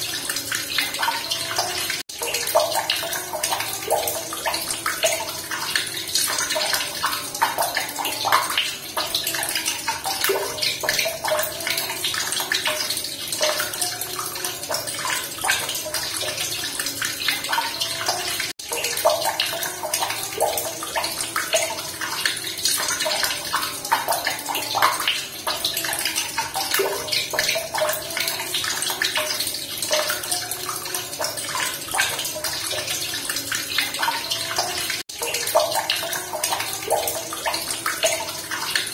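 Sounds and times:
running water splashing: 0.0s - 38.9s.

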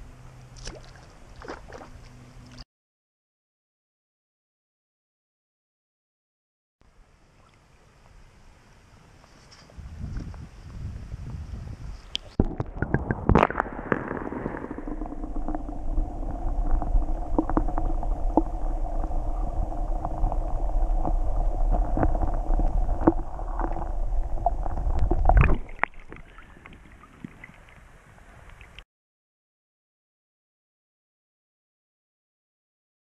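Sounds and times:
underwater rumbling and gurgling: 12.3s - 28.8s
knocks underwater: 12.4s - 27.6s.

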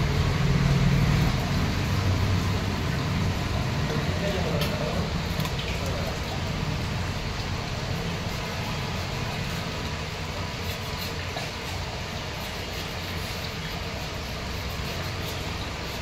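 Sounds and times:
knife scraping fish scales: 8.2s - 16.0s.

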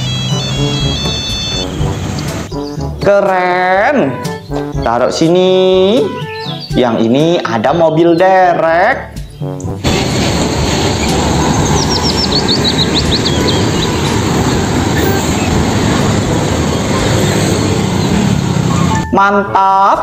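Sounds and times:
motor scooters passing: 0.0s - 2.5s, 9.8s - 19.0s
bird chirping: 0.0s - 3.1s, 4.2s - 16.1s
road traffic: 0.0s - 3.1s, 9.2s - 19.2s.

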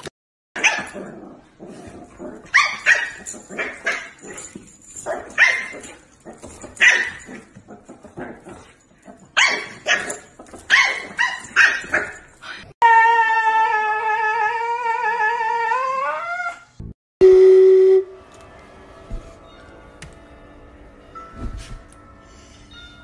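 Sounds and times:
dog barking: 0.6s - 1.0s, 9.4s - 12.2s
dog howling: 12.8s - 16.7s.

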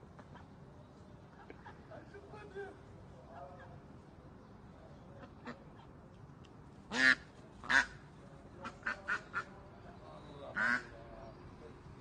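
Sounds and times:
duck quacking: 6.9s - 8.0s, 8.6s - 9.5s, 10.5s - 10.9s.

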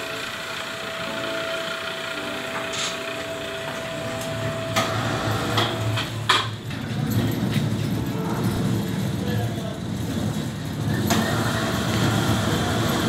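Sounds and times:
hollow metal knocks and clanks: 5.5s - 11.2s.

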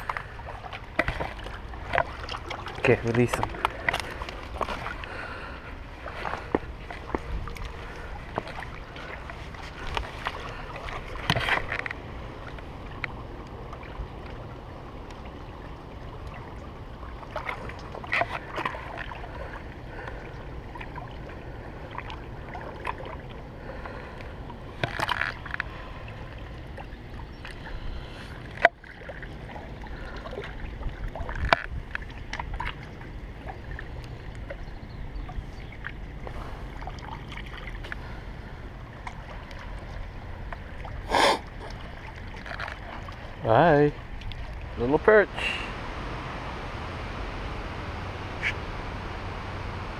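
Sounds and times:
handling knocks and splashes: 0.0s - 5.1s, 6.0s - 13.1s
wind rumble on microphone: 0.0s - 23.5s, 44.0s - 49.9s
waves lapping against rocks: 0.0s - 46.2s.

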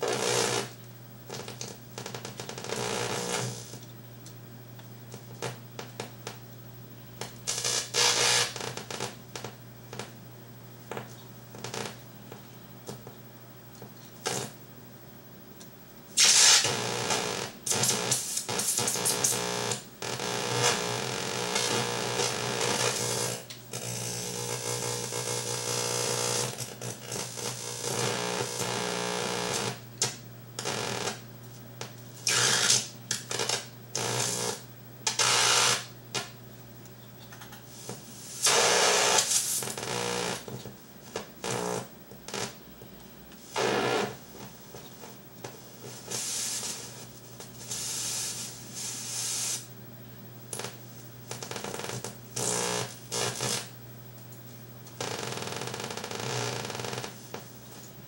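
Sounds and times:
hiss and buzzing electronic tones: 0.0s - 3.8s, 7.2s - 10.1s, 16.1s - 36.4s, 37.6s - 53.8s, 55.0s - 57.6s
steady low hum: 0.0s - 58.0s.

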